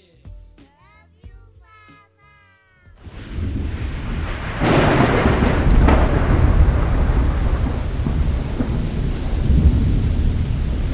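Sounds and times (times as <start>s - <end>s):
rolling thunder: 3.0s - 10.9s
steady rain: 3.0s - 10.9s.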